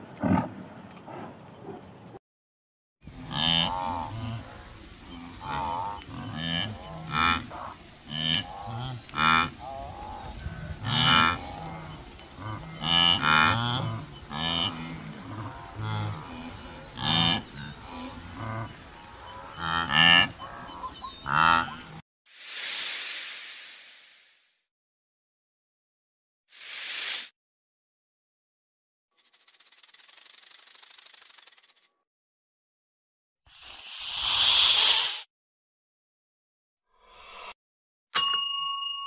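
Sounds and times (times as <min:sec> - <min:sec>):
wildebeest grunting calls: 0:03.1 - 0:22.0.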